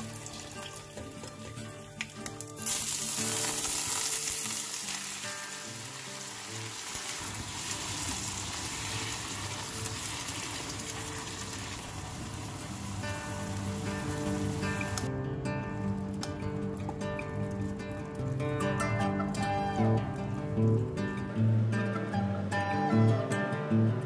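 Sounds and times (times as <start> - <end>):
greens sizzling in hot oil: 0.0 - 15.1.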